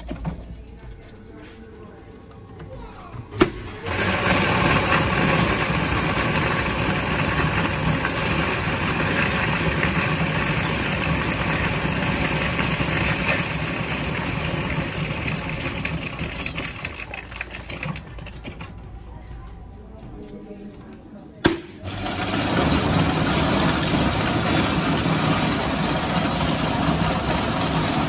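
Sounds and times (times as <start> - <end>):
coins clattering through machine: 3.8 - 18.8, 21.8 - 28.0.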